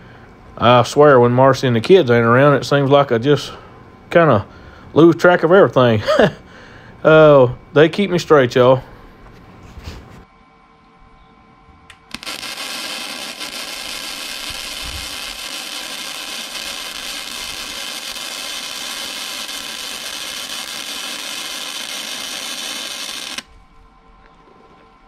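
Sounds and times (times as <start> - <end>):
arc strikes: 11.9 - 23.6
welder arc crackling: 11.9 - 23.6.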